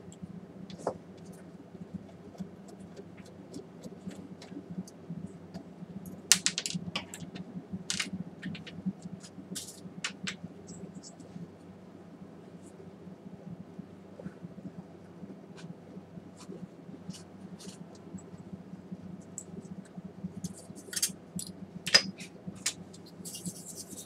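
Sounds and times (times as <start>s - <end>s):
steady low hum: 0.0s - 24.0s
hand tools clicking and scraping: 20.4s - 21.1s.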